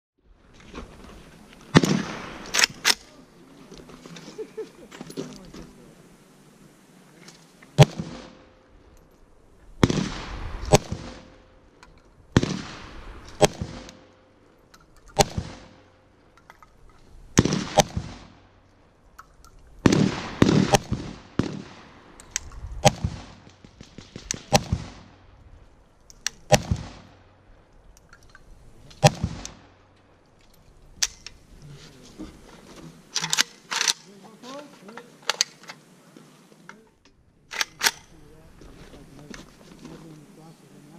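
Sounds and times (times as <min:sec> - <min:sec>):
rifle shots with echo: 0:01.7 - 0:03.2, 0:07.8 - 0:08.6, 0:09.8 - 0:11.6, 0:12.3 - 0:14.3, 0:15.2 - 0:16.0, 0:17.4 - 0:18.5, 0:19.8 - 0:22.2, 0:22.8 - 0:25.3, 0:26.3 - 0:27.5, 0:29.0 - 0:29.8.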